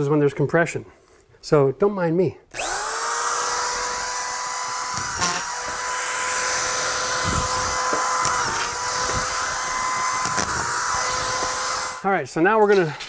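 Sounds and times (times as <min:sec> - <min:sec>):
screw gun whining: 0:02.5 - 0:12.1.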